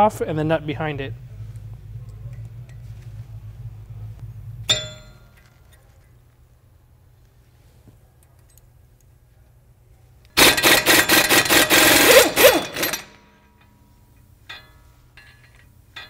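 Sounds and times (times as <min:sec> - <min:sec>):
impact wrench hammering: 0:04.6 - 0:05.6, 0:10.4 - 0:13.3
light metallic clinks: 0:08.2 - 0:09.1.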